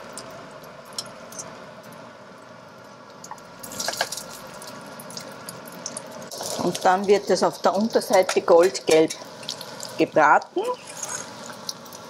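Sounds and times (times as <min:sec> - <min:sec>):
patties sizzling in oil: 0:03.0 - 0:12.0.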